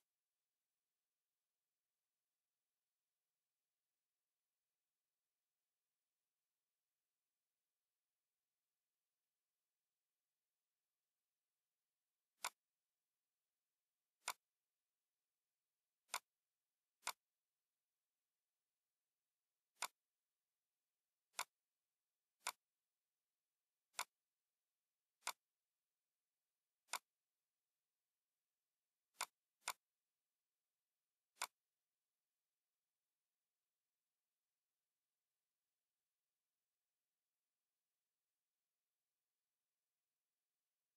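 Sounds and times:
computer mouse clicking: 12.4s - 12.7s, 14.2s - 14.6s, 16.0s - 16.4s, 17.0s - 17.4s, 19.7s - 20.1s, 21.3s - 21.6s, 22.4s - 22.7s, 23.9s - 24.2s, 25.2s - 25.6s, 26.8s - 27.3s, 29.1s - 29.9s, 31.3s - 31.7s.

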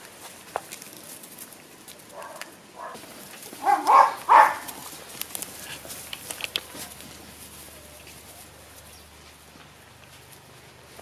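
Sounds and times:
puppies barking: 2.1s - 5.0s
puppies yipping: 2.1s - 6.0s.

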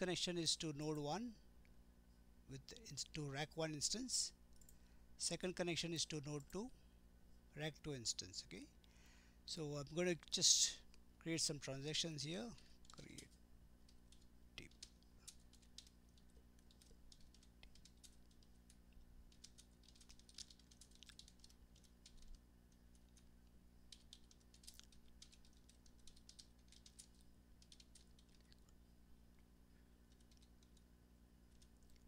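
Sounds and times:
low steady hum: 0.0s - 32.0s
keyboard typing: 12.8s - 28.7s, 30.1s - 30.9s, 31.5s - 32.0s.

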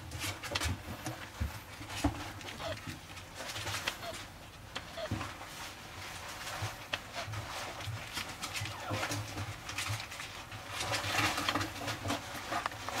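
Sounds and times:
puppy grunting: 2.6s - 2.8s, 8.6s - 9.2s.

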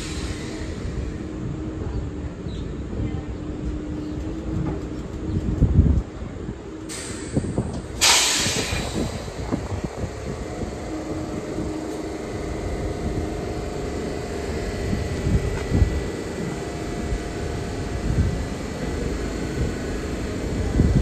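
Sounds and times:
air release hiss: 0.0s - 0.9s, 6.9s - 9.7s
stopped train humming: 0.0s - 21.0s.

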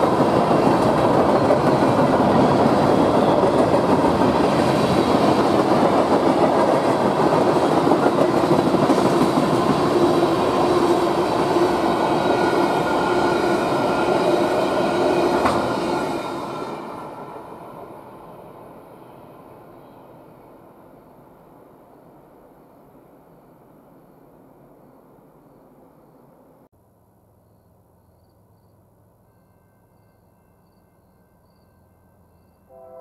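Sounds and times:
freight train wheels rumbling on rails: 0.0s - 21.6s.

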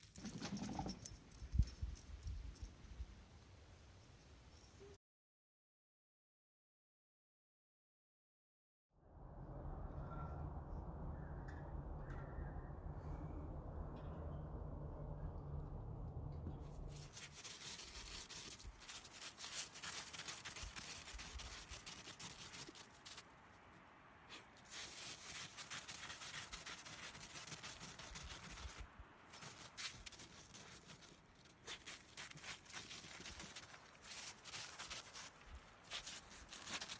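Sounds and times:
dog digging through snow: 16.9s - 23.2s, 24.3s - 36.9s.

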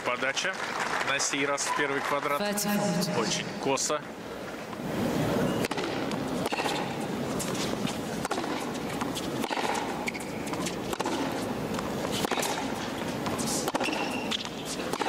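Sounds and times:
tennis ball struck by rackets: 8.2s - 9.9s, 10.9s - 11.4s, 13.6s - 14.1s.

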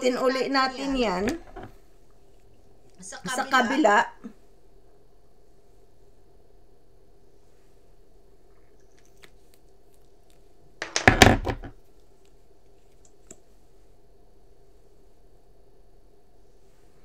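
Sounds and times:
faint steady hum: 0.0s - 17.0s
handling noise knocks and rustling: 10.8s - 11.8s.

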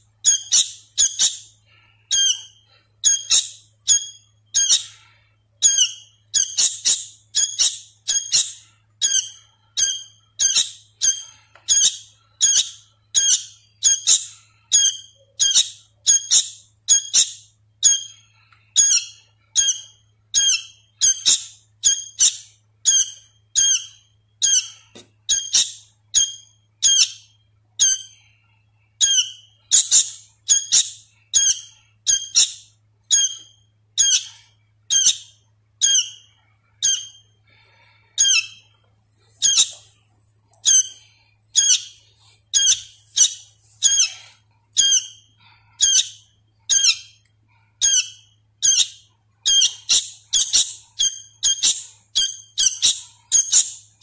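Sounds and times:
young bird calling: 39.3s - 39.9s, 40.6s - 47.2s, 47.8s - 54.0s.

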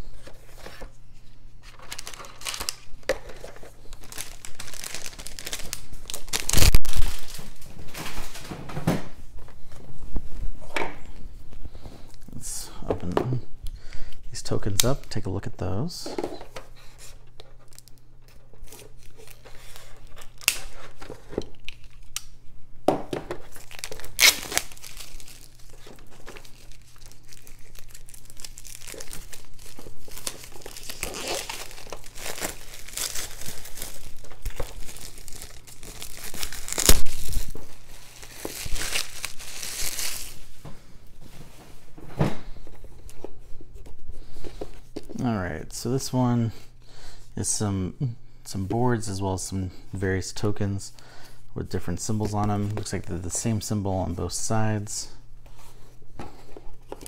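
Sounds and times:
cardboard and paper rustling: 1.6s - 9.0s, 23.3s - 40.6s.

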